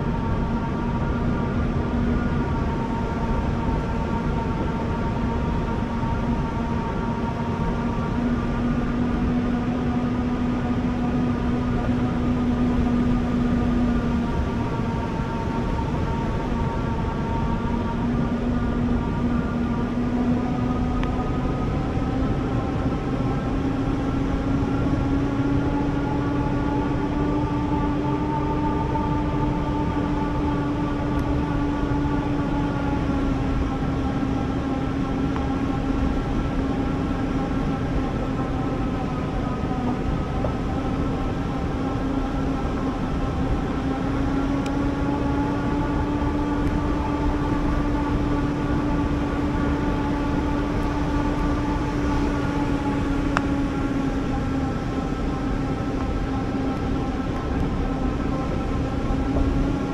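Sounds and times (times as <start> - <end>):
low rumble: 0.0 - 59.9.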